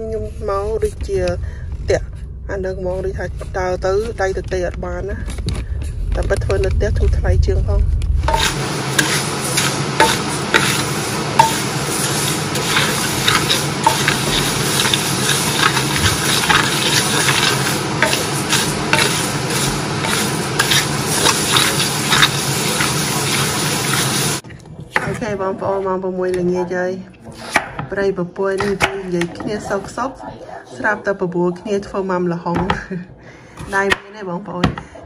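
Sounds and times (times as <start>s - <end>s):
food sizzling in a pan: 8.2s - 24.4s.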